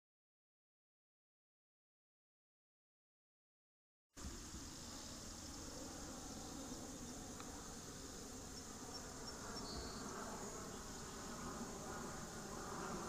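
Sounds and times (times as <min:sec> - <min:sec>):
insects chirring: 0:04.2 - 0:13.0.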